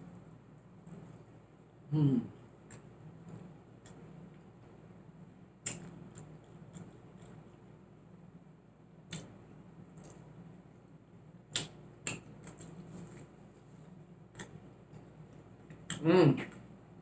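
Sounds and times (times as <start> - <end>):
quiet chewing: 0.0 - 1.5, 2.3 - 7.8
wet mouth clicks and smacks: 5.6 - 7.4, 11.5 - 12.8.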